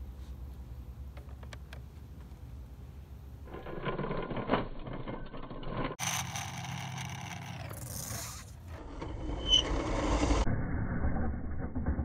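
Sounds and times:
steady hum with hiss: 0.0 - 3.5.

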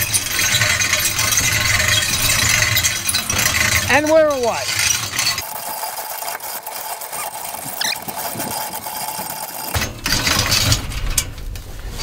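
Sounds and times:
small clicks and ticks: 4.7 - 9.8.

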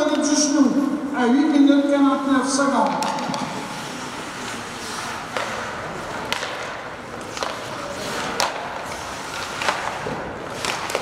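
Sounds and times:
arena noise: 0.0 - 11.0
hockey sticks and puck knocking: 2.7 - 11.0.

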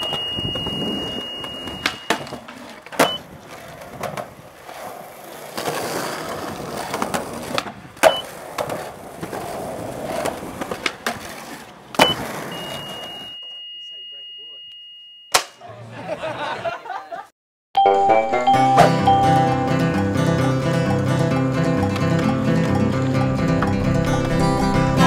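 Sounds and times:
skateboard clacking: 0.0 - 13.3, 20.9 - 23.8
skateboard wheels rolling on concrete: 0.0 - 13.4, 18.6 - 25.0.

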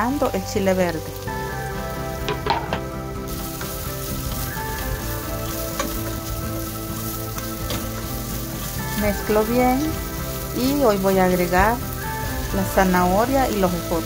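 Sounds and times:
vegetables sizzling in hot oil: 0.0 - 14.0
tongs clicking and scraping: 5.5 - 6.4.

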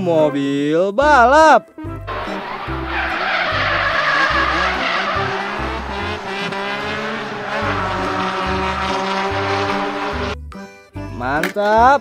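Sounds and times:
car engine revving high: 2.1 - 10.4
tyres squealing: 2.1 - 10.4.

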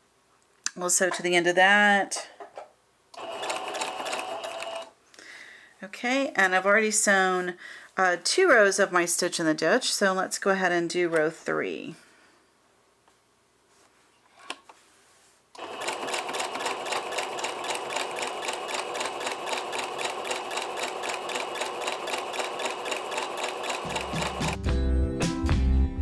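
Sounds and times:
sewing machine stitching: 3.2 - 4.9, 15.6 - 24.6.

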